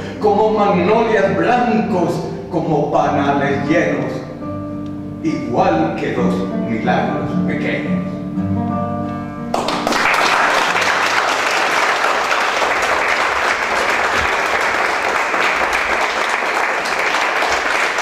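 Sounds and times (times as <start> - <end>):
guitar notes: 4.0 - 9.8
audience applauding: 9.5 - 18.0.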